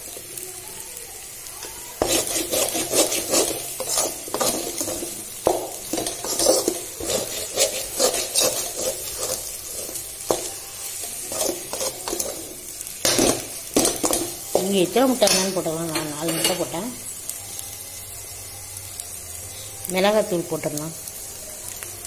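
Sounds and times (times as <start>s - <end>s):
egg sizzling in oil: 0.0s - 22.0s
metal spatula scraping a pan: 1.7s - 16.8s.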